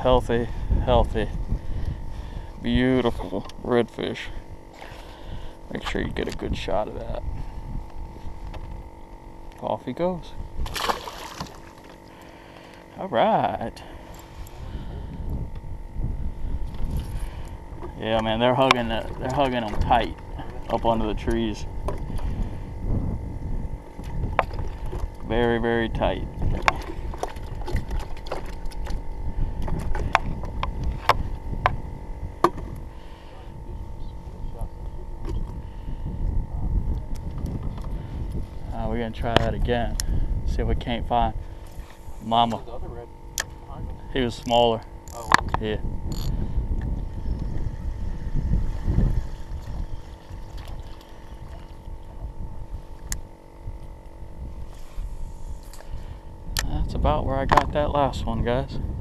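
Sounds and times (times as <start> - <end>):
low wind rumble: 0.0 - 59.0
water sloshing around canoe: 10.6 - 12.7, 48.7 - 53.0.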